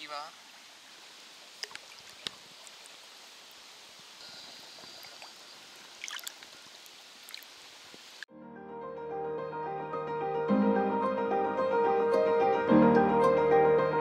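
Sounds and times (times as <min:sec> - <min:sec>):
water lapping and trickling: 0:00.0 - 0:08.3
small water splashes: 0:00.4 - 0:08.2
piano music: 0:08.3 - 0:14.0.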